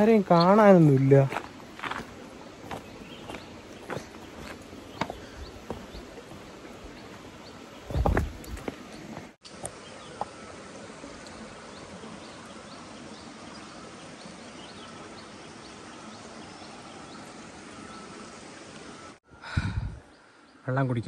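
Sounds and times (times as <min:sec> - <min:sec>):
steady forest hiss: 0:00.0 - 0:21.0.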